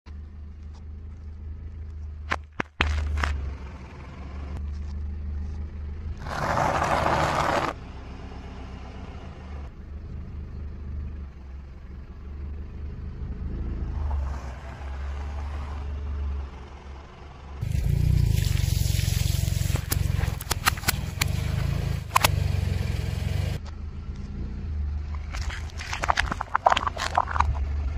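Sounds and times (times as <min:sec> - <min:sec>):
car engine rumble: 0:00.1 - 0:27.9
loud crunching: 0:02.2 - 0:03.5, 0:17.6 - 0:22.4, 0:25.2 - 0:27.9
tyre crushing food: 0:25.2 - 0:27.6.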